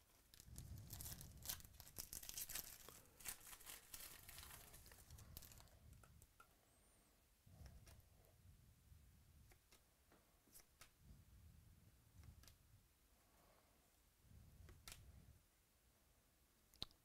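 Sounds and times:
foil wrapper tearing and crinkling: 0.3 - 5.7.

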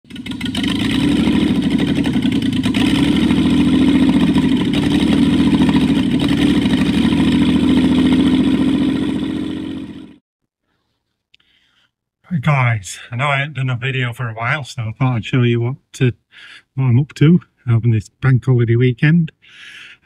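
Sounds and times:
car engine running steadily: 0.0 - 10.2.

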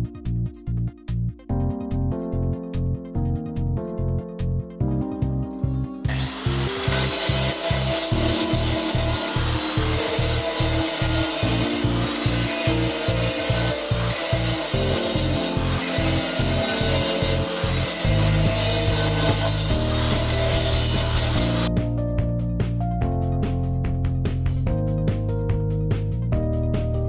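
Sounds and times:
music with steady bass beat: 0.0 - 6.1, 21.3 - 27.0
angle grinder grinding metal: 6.0 - 21.7.

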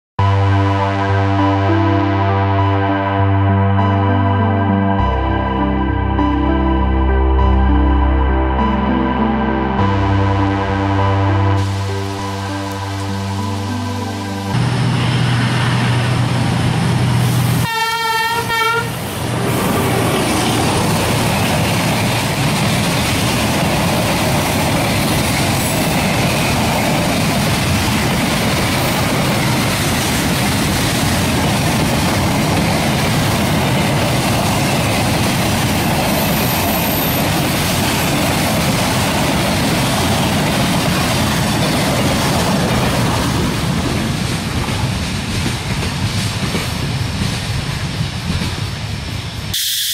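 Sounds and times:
locomotive horn blast: 0.2 - 3.5, 9.8 - 16.2, 16.9 - 20.1
freight train rolling on rails: 11.6 - 49.9.

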